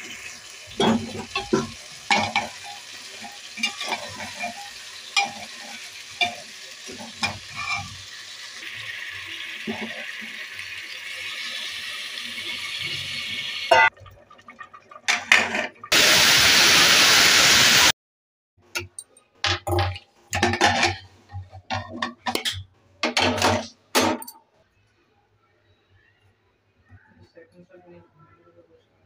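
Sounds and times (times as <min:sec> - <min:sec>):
water pouring: 0:00.0 - 0:17.0.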